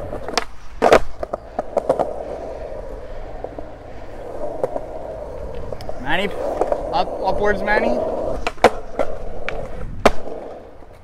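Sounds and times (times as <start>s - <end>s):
skateboard clacking on concrete: 0.0s - 11.0s
skateboard wheels rolling: 0.0s - 11.0s.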